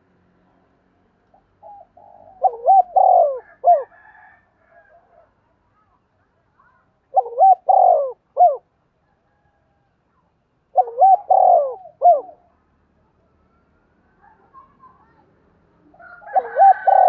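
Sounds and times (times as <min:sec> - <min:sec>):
dove cooing: 0:01.3 - 0:04.2, 0:07.1 - 0:08.6, 0:10.7 - 0:12.5, 0:16.0 - 0:17.0.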